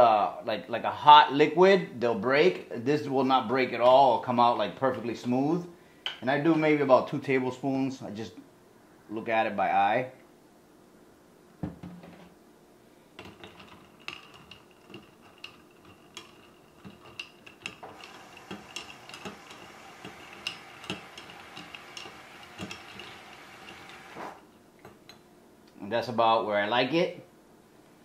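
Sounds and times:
spoon and ice clinking on glass: 0:13.2 - 0:24.0
liquid swishing: 0:13.2 - 0:24.5.

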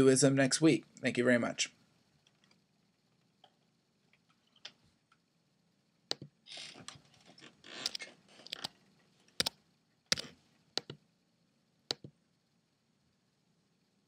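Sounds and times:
computer mouse and key clicks: 0:06.1 - 0:06.3, 0:07.7 - 0:11.0, 0:11.9 - 0:12.2.

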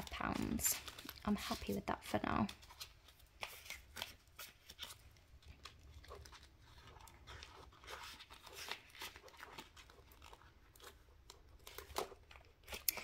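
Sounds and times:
banknotes rustling: 0:00.0 - 0:13.0.

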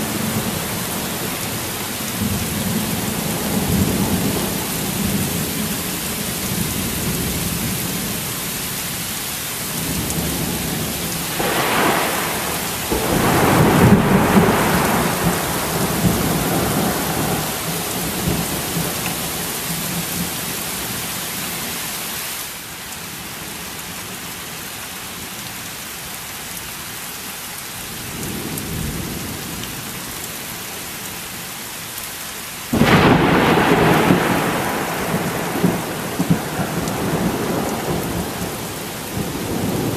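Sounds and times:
heavy rain: 0:00.0 - 0:39.9
thunder rumbling: 0:09.8 - 0:20.3, 0:32.7 - 0:39.9
loud thunder clap: 0:11.3 - 0:17.6, 0:32.7 - 0:38.6.

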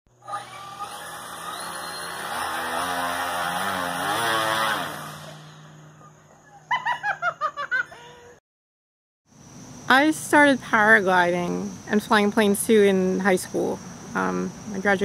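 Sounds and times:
electric propellers whirring: 0:00.1 - 0:06.1
person laughing: 0:06.0 - 0:08.4.

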